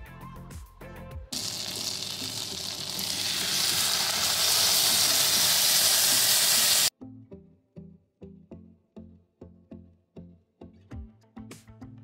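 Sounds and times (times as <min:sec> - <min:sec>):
steak sizzling in butter in a pan: 0:01.4 - 0:06.9.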